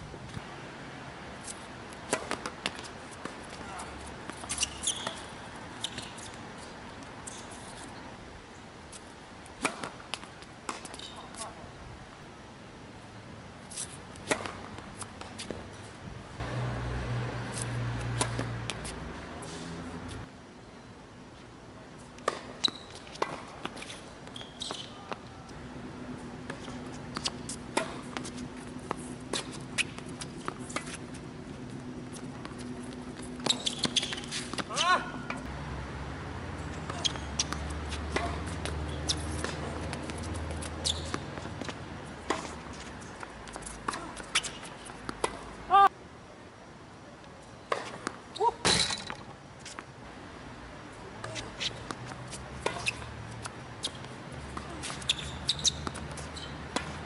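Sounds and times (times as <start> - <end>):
shoes squeaking on hard court: 1.4 - 8.1, 8.9 - 11.6, 22.1 - 25.5, 26.2 - 35.5, 36.6 - 45.5, 47.4 - 49.8, 51.2 - 57.0
tennis racket hitting ball: 2.0 - 6.2, 9.6 - 11.0, 14.2 - 15.6, 16.4 - 19.0, 26.4 - 35.5, 36.8 - 45.4, 51.2 - 57.0
players' footsteps: 36.6 - 45.5
tennis ball knocks: 36.9 - 38.8.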